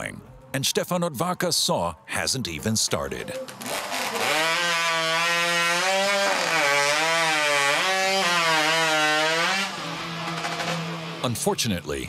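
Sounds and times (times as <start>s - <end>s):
saw engine cutting through log: 3.5s - 11.4s.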